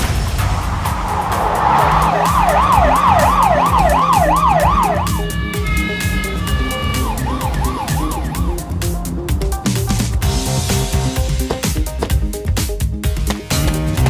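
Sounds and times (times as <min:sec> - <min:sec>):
music with steady beat: 0:00.6 - 0:14.0
police siren wailing: 0:01.3 - 0:10.2.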